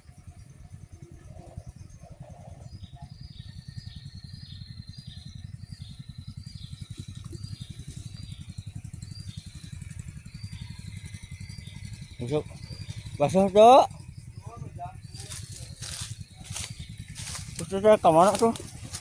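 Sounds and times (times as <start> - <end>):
small boat engine putter: 5.8 - 19.0.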